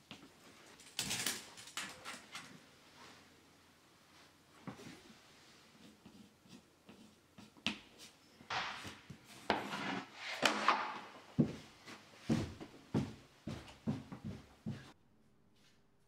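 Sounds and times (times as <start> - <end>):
heavy footsteps on floor: 11.4 - 15.0.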